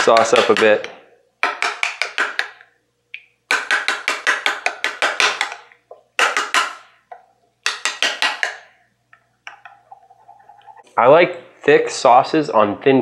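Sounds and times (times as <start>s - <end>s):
metal spoon scraping bowl: 9.6s - 10.9s.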